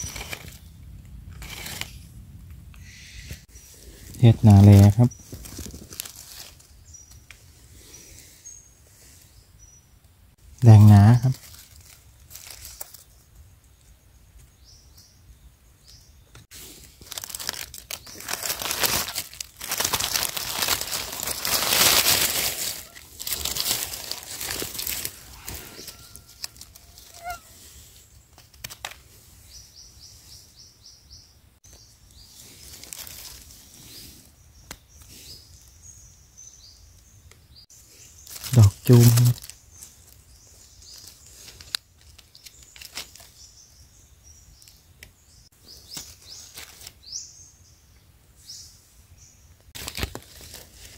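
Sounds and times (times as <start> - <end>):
dry leaves rustling and crackling: 0.0 - 0.7, 1.3 - 2.0, 3.9 - 7.2, 11.0 - 13.2, 16.5 - 27.5, 32.2 - 34.0, 38.2 - 43.4, 45.8 - 47.1, 49.8 - 50.9.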